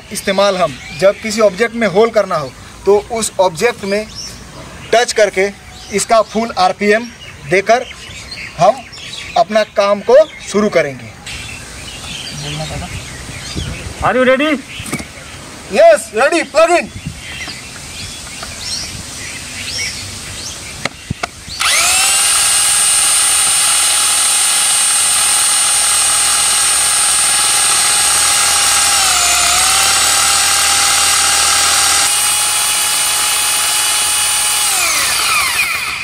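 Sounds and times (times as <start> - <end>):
drill clicks: 21.6 - 36.0
hammer drill whining: 21.6 - 36.0.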